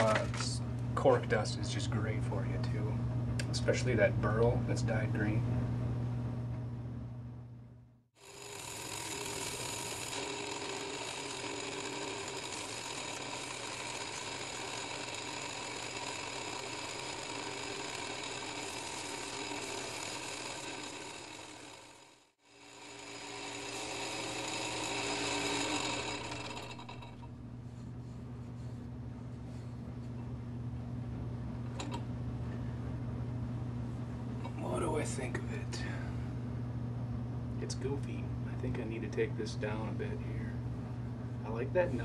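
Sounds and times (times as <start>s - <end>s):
sandpaper on spinning rod: 8.2s - 22.0s, 22.6s - 27.1s
lathe motor whirring: 8.2s - 30.2s.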